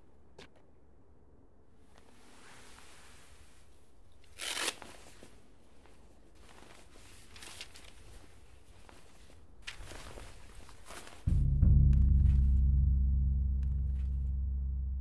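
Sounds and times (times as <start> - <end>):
rustling of cloth and paper: 1.8 - 11.3
fabric ripping: 4.2 - 5.3.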